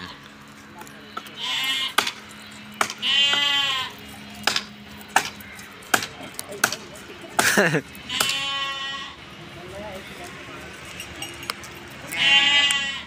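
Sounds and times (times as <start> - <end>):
goats and sheep bleating: 0.0 - 0.6, 1.2 - 4.4, 7.1 - 9.4, 11.8 - 13.0.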